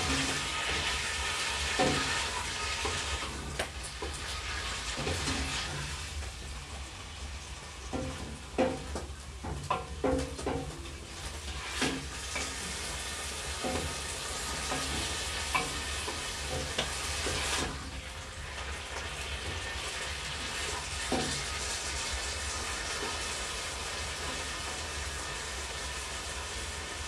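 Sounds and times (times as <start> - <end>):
utensil scraping metal pot: 0.0 - 6.0
chicken sizzling in oil: 0.0 - 27.0.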